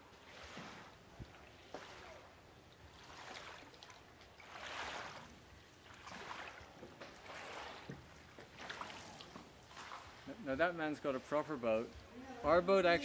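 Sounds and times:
paddle swishing through water: 0.0s - 10.5s
water drips: 0.1s - 10.4s.

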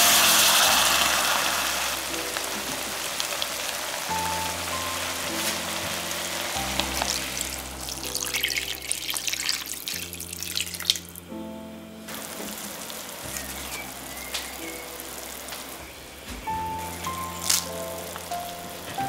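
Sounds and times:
water pouring into a pot: 0.0s - 11.1s
soft background music: 0.0s - 19.0s.

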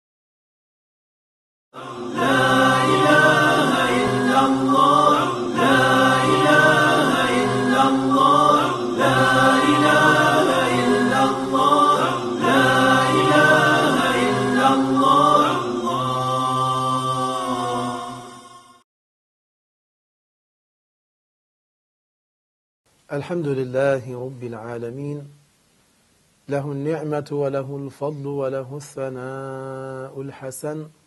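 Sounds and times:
a cappella choral chanting: 1.8s - 18.8s.

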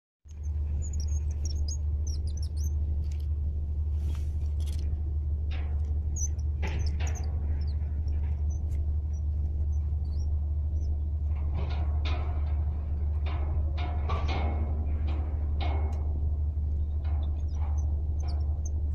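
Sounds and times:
steady low rumble: 0.2s - 18.9s
small birds chirping: 0.3s - 3.4s, 5.9s - 11.2s, 17.2s - 18.9s.

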